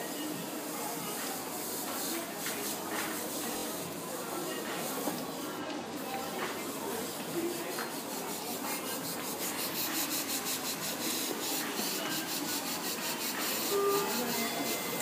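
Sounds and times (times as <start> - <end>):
airbrush spraying hissing puffs: 7.5 - 15.0.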